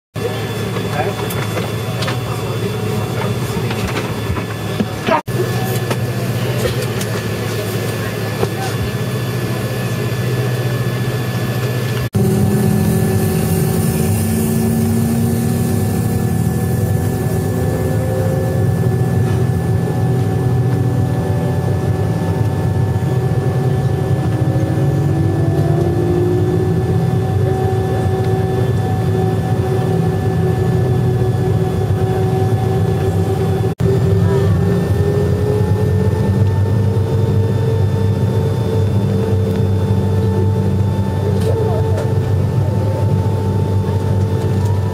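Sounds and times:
jet engines rumbling and whining: 0.2s - 44.9s.

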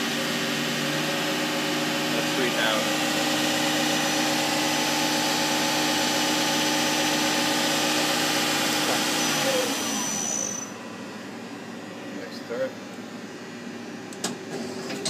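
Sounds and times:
lathe spindle whining: 0.0s - 11.6s.

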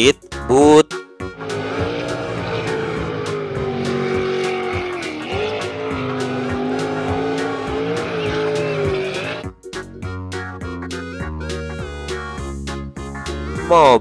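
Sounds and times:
cheerful background music: 0.0s - 14.0s
boat engine running hard: 1.4s - 9.4s.

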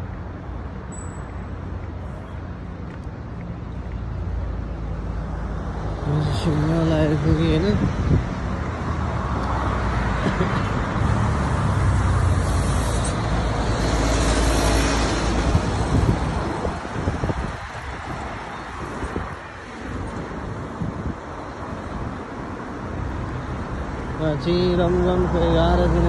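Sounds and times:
road traffic rumble: 0.0s - 26.0s
vehicle passing close: 9.1s - 18.2s.

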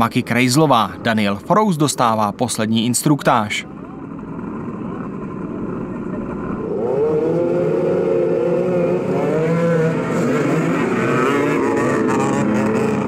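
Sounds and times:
small engines revving: 4.3s - 13.0s.

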